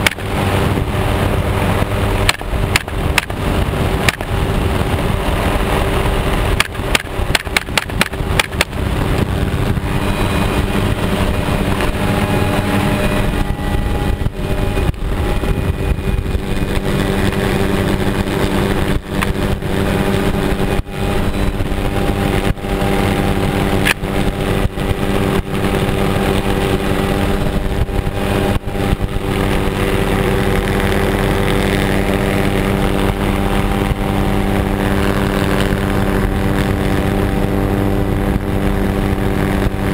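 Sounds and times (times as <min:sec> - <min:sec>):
helicopter engine and rotor drone: 0:00.0 - 0:39.9
wind buffeting microphone: 0:00.0 - 0:39.9
sharp knocks: 0:06.6 - 0:08.8.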